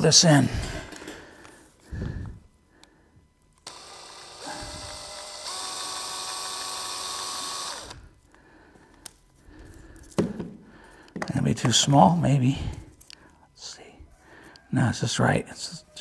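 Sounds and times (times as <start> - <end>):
power drill whining: 3.6 - 8.2.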